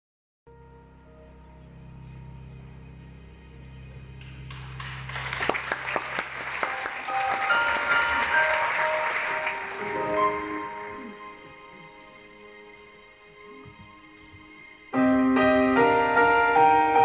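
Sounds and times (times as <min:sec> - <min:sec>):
soft sustained music: 0:00.5 - 0:17.0
audience applauding: 0:04.2 - 0:12.3.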